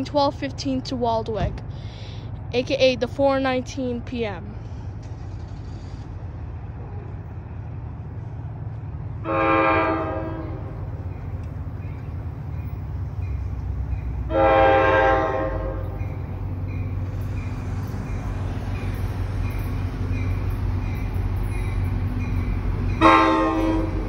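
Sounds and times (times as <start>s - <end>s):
train rumble: 0.0s - 24.0s
train air horn blasts: 9.2s - 10.8s, 14.3s - 16.0s, 23.0s - 24.0s.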